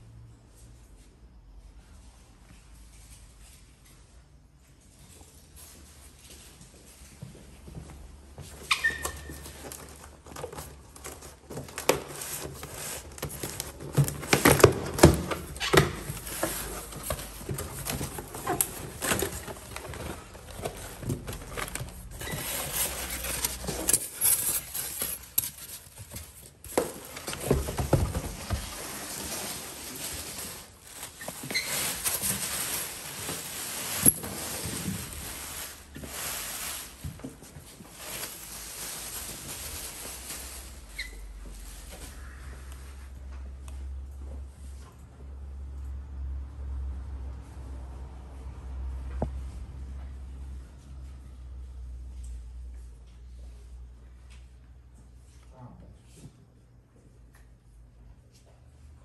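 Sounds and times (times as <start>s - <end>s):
plastic wrap crinkling: 8.7s - 42.4s
cardboard being handled: 8.9s - 40.4s.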